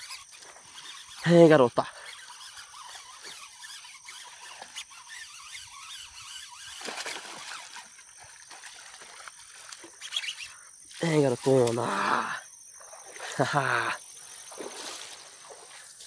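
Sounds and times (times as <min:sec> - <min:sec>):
water sloshing and splashing: 0:02.1 - 0:12.1, 0:14.0 - 0:16.0.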